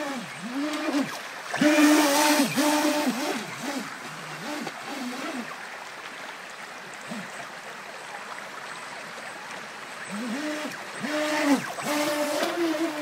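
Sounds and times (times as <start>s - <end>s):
electric boat motor whining: 0.0s - 5.8s, 9.9s - 13.0s
rushing creek water: 0.0s - 13.0s.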